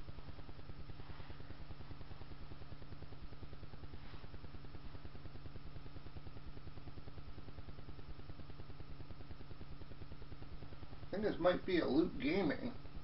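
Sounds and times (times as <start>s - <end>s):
low hum with pulsing buzz: 0.0s - 13.0s
faint rustle: 0.8s - 2.5s, 3.8s - 5.0s.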